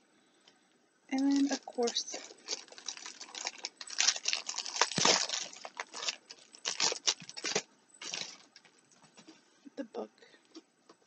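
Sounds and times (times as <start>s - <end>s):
packaging rustling and crinkling: 1.1s - 9.4s.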